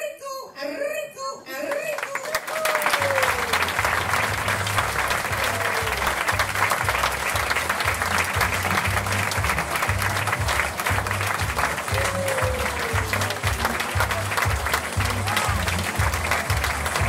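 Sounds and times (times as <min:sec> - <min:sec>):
audience applauding: 0:01.8 - 0:17.0
music with pulsing bass: 0:03.9 - 0:17.0.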